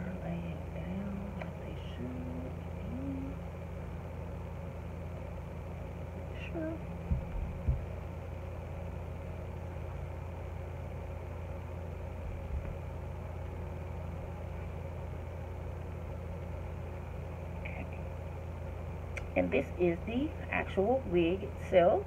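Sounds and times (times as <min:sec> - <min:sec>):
low background hum: 0:00.0 - 0:22.0
soft thumps: 0:07.0 - 0:07.9.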